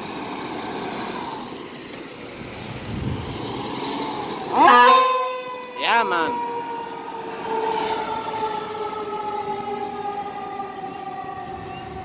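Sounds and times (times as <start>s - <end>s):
fire truck siren: 3.0s - 12.0s.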